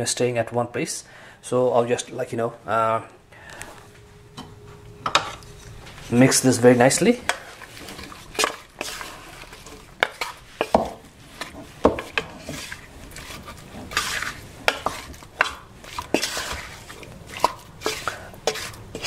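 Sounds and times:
wet scraping swishes: 7.4s - 19.0s.

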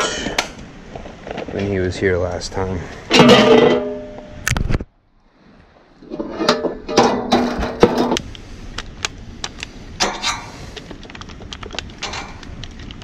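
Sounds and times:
steady pitched hum: 1.9s - 13.0s
hands handling sheet metal: 6.0s - 8.3s, 9.5s - 13.0s.

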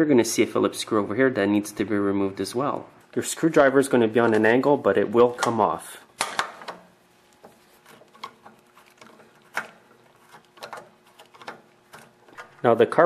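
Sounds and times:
small metal clicks and scrapes: 7.3s - 12.8s.

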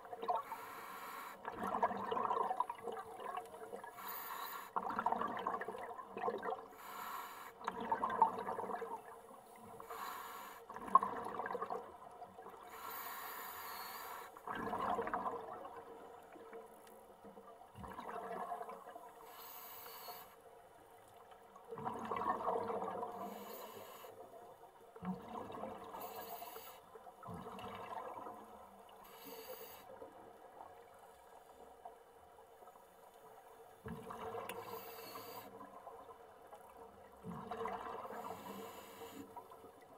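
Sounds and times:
exhaled bubbles: 1.4s - 3.9s, 4.8s - 6.8s, 7.6s - 9.1s, 10.7s - 12.6s, 14.4s - 16.6s, 17.8s - 19.1s, 21.7s - 23.5s, 25.0s - 26.0s, 27.2s - 28.5s, 33.9s - 34.8s, 37.2s - 38.8s.

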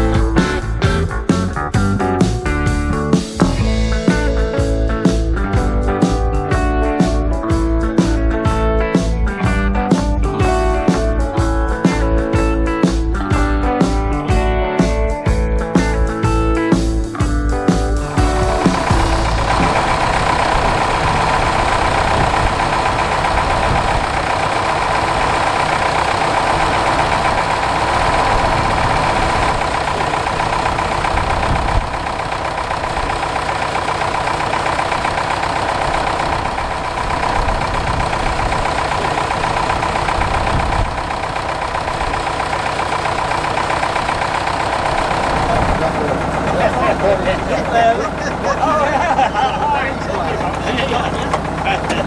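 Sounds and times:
tractor diesel engine idling: 0.0s - 52.0s.

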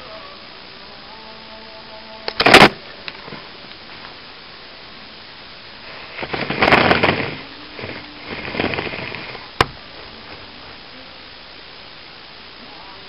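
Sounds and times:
sharp click: 2.3s - 2.8s
crackling rustling noise: 2.3s - 12.3s.

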